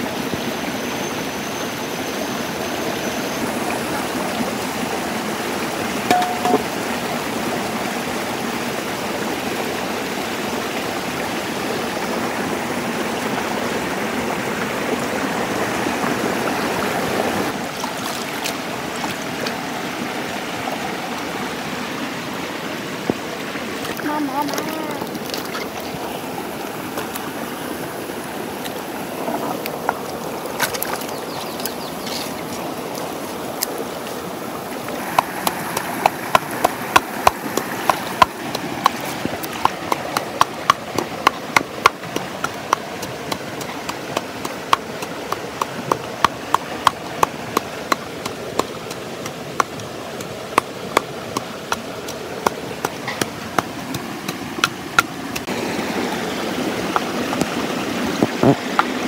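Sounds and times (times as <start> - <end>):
stream water running: 0.0 - 59.0
pestle pounding in wooden mortar: 6.1 - 6.8, 35.1 - 55.5.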